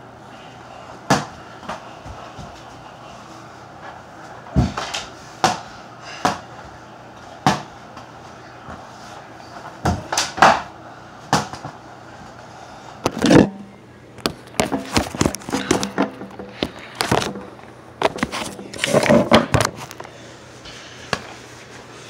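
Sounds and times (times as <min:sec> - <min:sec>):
phone being handled: 0:14.2 - 0:20.1.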